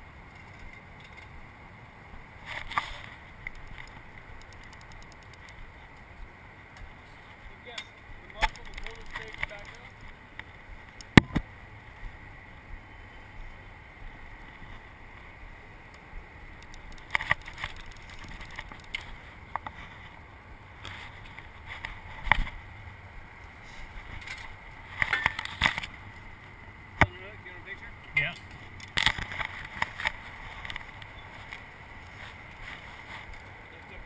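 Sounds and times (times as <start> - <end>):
traffic: 0.0 - 34.0
wind: 0.0 - 34.0.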